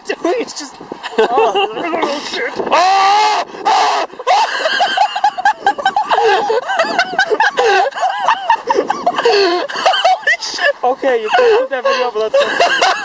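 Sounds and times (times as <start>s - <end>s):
person laughing: 1.1s - 2.2s, 3.8s - 13.0s.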